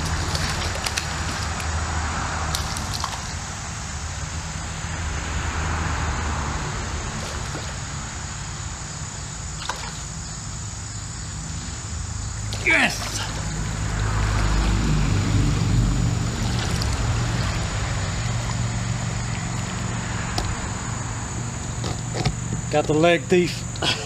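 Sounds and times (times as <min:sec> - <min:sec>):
creek water clicks and splashes: 0:00.0 - 0:03.7, 0:07.1 - 0:08.0, 0:09.5 - 0:10.6, 0:12.2 - 0:20.8
traffic rumble on bridge: 0:00.0 - 0:24.0.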